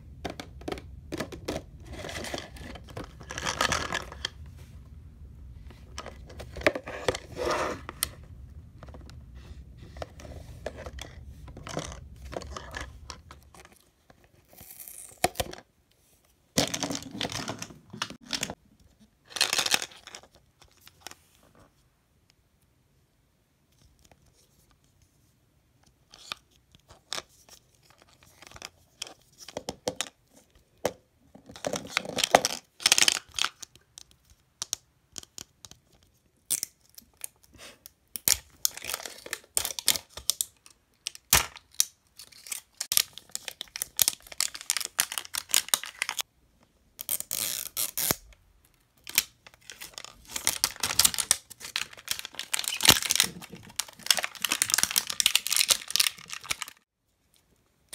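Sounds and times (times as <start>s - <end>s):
plastic packaging crinkling: 38.3s - 46.2s, 49.0s - 56.8s.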